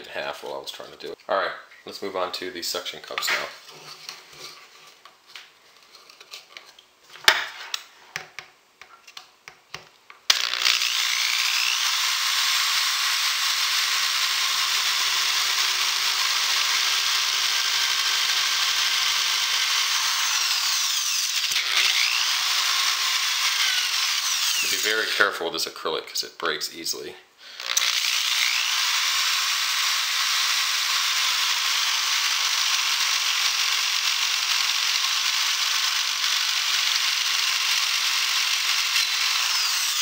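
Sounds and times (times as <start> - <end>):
electric drill boring acrylic: 10.3 - 25.1, 27.6 - 40.0.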